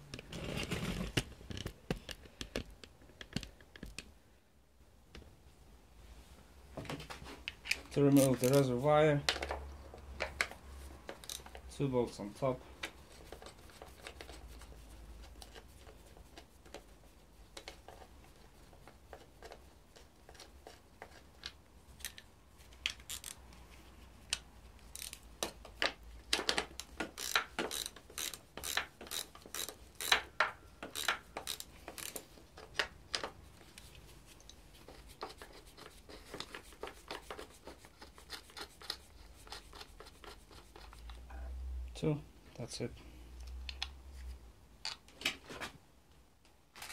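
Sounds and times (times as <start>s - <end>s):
ratchet wrench clicking: 27.2s - 32.2s.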